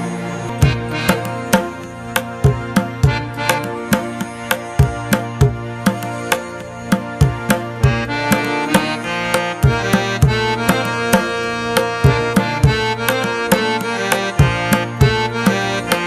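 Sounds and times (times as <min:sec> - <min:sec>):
sustained melodic line: 0:00.0 - 0:16.0
drum beat: 0:00.6 - 0:04.2, 0:04.8 - 0:08.9, 0:09.6 - 0:13.7.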